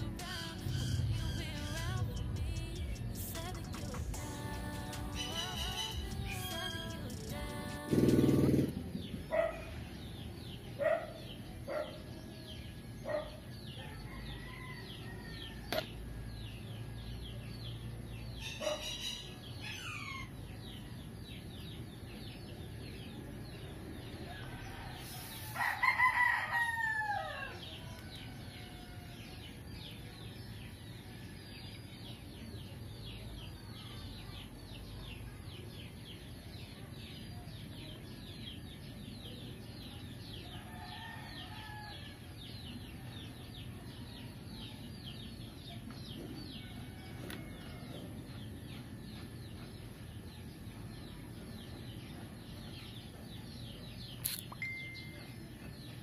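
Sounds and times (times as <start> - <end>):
fast high chirping: 0.0 - 8.7
rooster crowing: 5.1 - 6.2, 13.6 - 16.2, 24.2 - 29.5, 40.4 - 42.4, 46.6 - 48.1.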